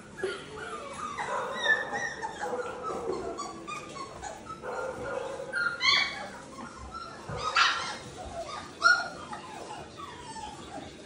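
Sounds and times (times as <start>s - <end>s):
puppies whining and yipping: 0.0s - 11.0s
puppy barking: 1.2s - 6.3s.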